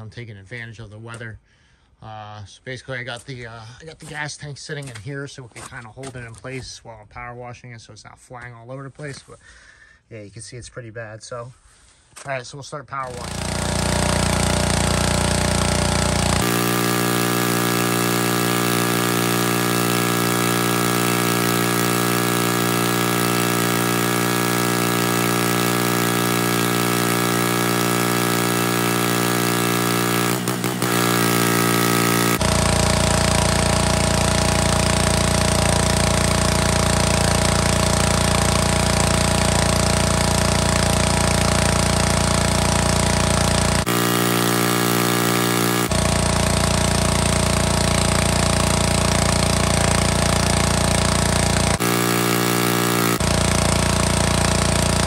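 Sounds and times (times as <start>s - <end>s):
pressure washer spraying water: 13.1s - 55.0s.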